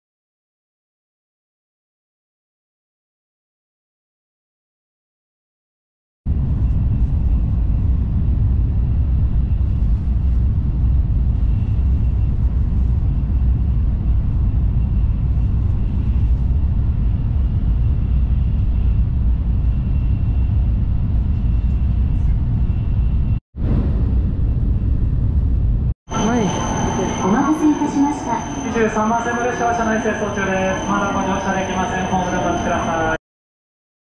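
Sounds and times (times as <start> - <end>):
train cabin low rumble: 6.3 - 33.2
faint high whine: 26.1 - 33.2.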